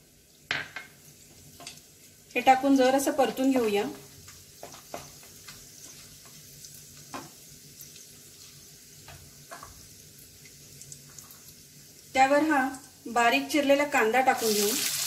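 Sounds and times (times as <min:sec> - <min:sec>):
spices sizzling in hot oil: 0:00.0 - 0:15.0
clicks and pops of frying: 0:00.1 - 0:02.6, 0:03.2 - 0:13.0, 0:14.3 - 0:15.0.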